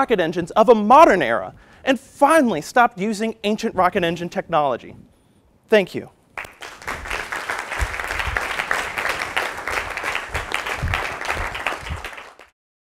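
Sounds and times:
audience applauding: 6.4s - 12.6s.

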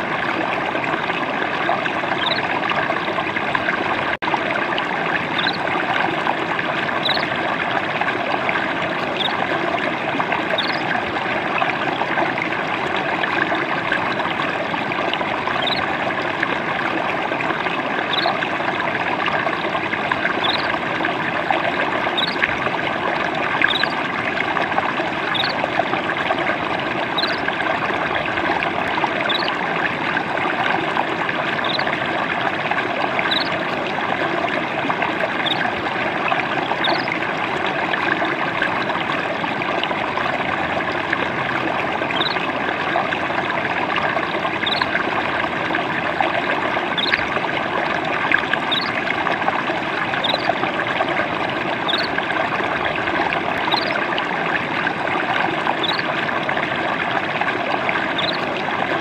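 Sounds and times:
water trickling and splashing: 0.0s - 59.0s.

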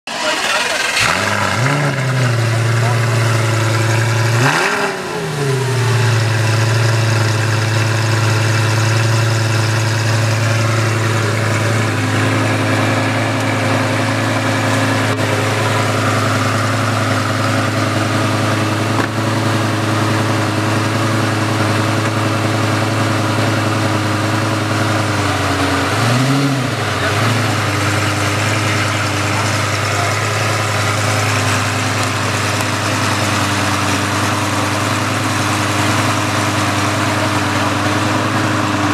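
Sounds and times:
sports car engine idling: 0.1s - 38.9s.

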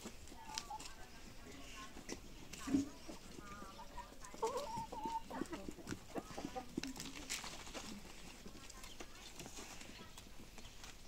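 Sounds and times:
hens clucking: 0.0s - 11.0s.

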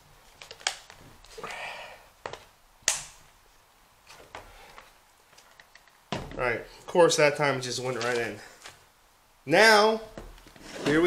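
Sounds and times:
plastic parts snapping: 0.3s - 1.0s, 2.2s - 3.2s
plastic rustle: 7.8s - 8.9s.

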